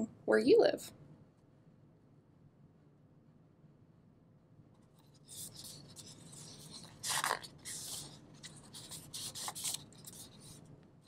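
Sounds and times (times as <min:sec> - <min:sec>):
book page turning and rustling: 0:04.9 - 0:10.6.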